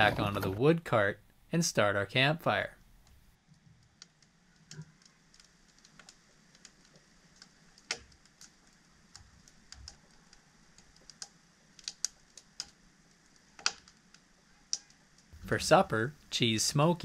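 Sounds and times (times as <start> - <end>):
campfire crackling: 2.8 - 17.0
sharp snaps of burning wood: 3.0 - 15.3.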